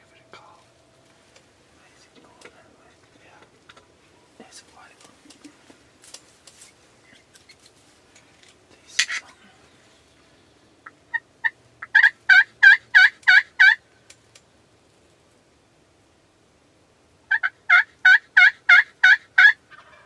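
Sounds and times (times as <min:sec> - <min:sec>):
turkey gobble: 0:10.8 - 0:13.8, 0:17.3 - 0:20.0
turkey yelps: 0:10.8 - 0:13.8, 0:17.3 - 0:20.0.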